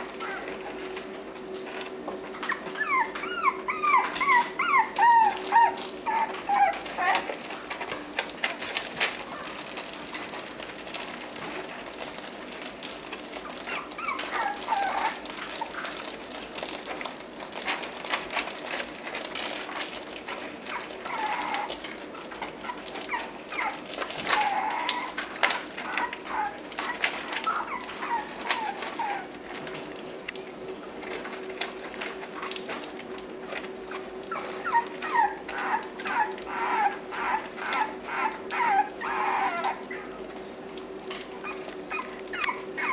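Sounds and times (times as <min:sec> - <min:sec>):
puppies whimpering and yipping: 0:00.0 - 0:01.0, 0:02.3 - 0:07.9, 0:13.3 - 0:16.1, 0:20.4 - 0:29.4, 0:33.8 - 0:40.4, 0:41.3 - 0:42.9
small clicks and scratches: 0:00.0 - 0:42.9.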